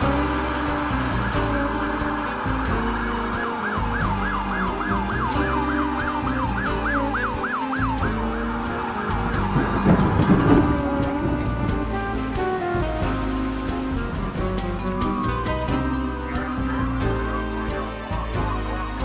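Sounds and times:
siren yelping: 0:00.0 - 0:11.7
music score: 0:00.0 - 0:19.0
loud low rumble: 0:08.0 - 0:16.2.

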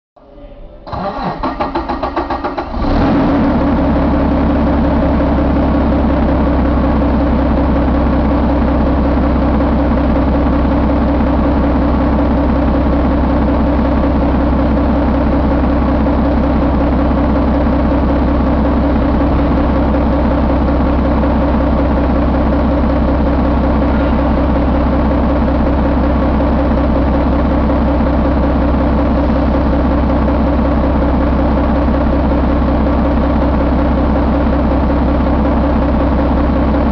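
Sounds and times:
diesel engine starting and idling: 0:00.8 - 0:36.9.

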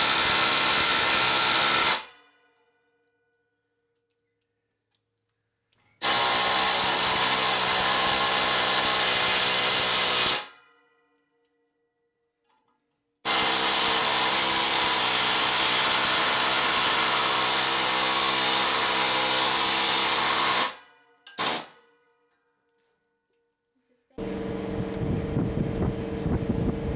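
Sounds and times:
air hammer cutting sheet metal: 0:00.0 - 0:02.2, 0:06.0 - 0:10.6, 0:13.3 - 0:21.8.

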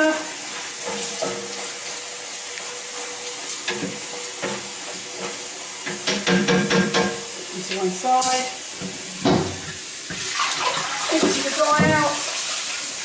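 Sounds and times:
tap water pouring into saucepan: 0:08.4 - 0:13.0.

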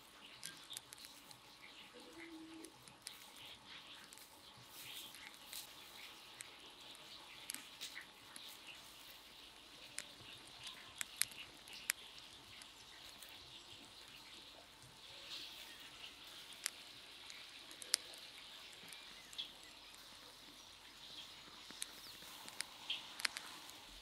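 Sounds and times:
faint background hiss: 0:00.0 - 0:24.0
sharp clicks: 0:09.9 - 0:14.2, 0:15.8 - 0:20.0, 0:21.6 - 0:23.8.

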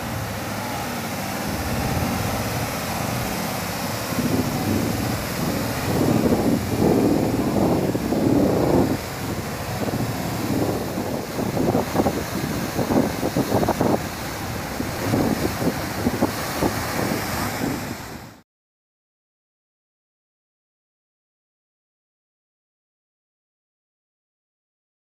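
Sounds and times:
waterfall rushing: 0:00.0 - 0:18.4
wind buffeting microphone: 0:00.0 - 0:18.4.

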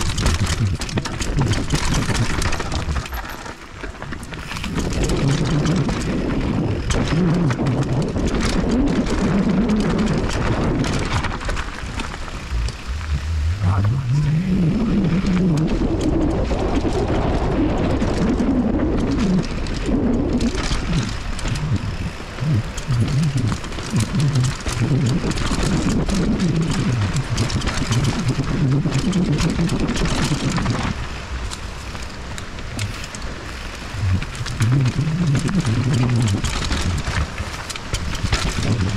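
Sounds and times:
low rumble: 0:00.0 - 0:03.6, 0:04.5 - 0:27.3, 0:30.2 - 0:37.6
tyres crunching over dirt and stones: 0:00.0 - 0:14.4
bike rattling: 0:00.0 - 0:38.9.

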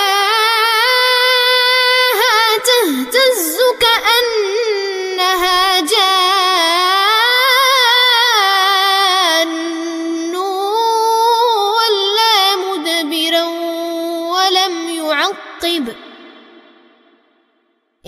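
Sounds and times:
person chanting melodically: 0:00.0 - 0:17.1.

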